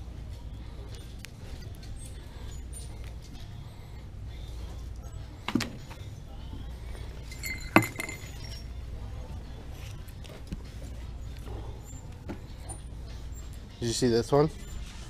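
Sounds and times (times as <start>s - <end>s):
low background hum: 0.0s - 15.0s
hard objects clinking: 7.2s - 8.6s.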